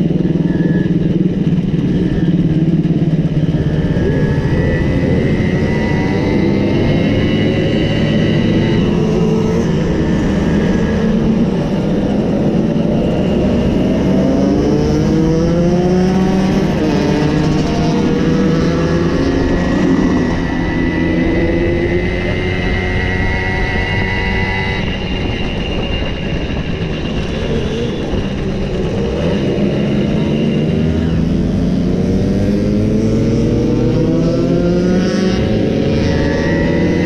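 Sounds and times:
two-stroke moped engines: 0.0s - 37.0s.

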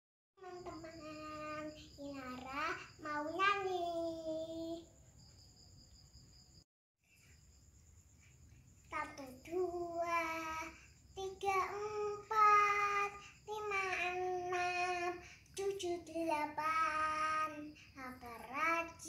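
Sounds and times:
girl singing unaccompanied: 0.4s - 4.9s, 8.9s - 19.0s.

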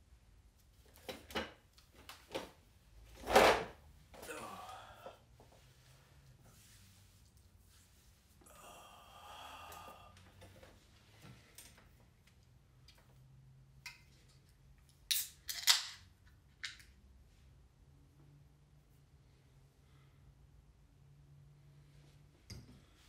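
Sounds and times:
beer can snapping open: 15.1s - 16.0s.

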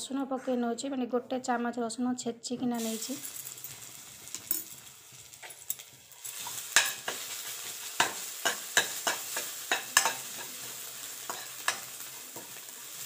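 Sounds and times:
garlic sizzling in hot oil: 2.8s - 13.0s
metal spoon scraping a wok: 5.4s - 13.0s.

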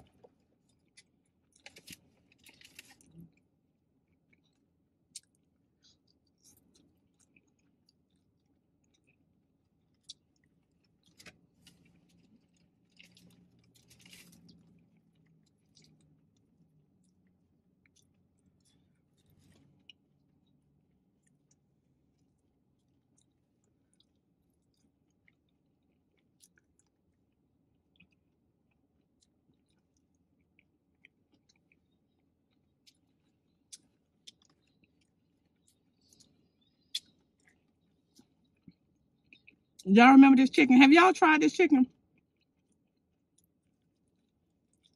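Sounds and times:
person chewing: 0.0s - 20.1s, 21.2s - 39.8s, 42.1s - 44.9s
faint low hum: 0.0s - 44.9s
wet mouth clicks: 36.2s - 37.6s.

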